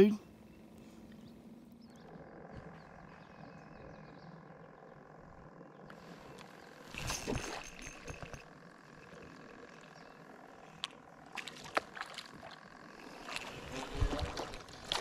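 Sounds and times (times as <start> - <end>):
fishing tackle clicks and knocks: 6.9 - 8.5.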